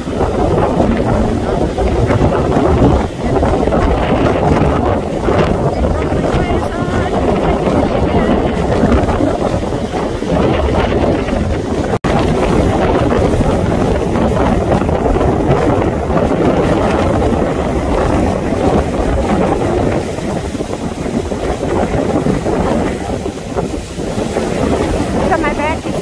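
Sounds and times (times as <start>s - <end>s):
strong wind buffeting microphone: 0.0s - 26.0s
waves breaking against concrete: 0.0s - 26.0s.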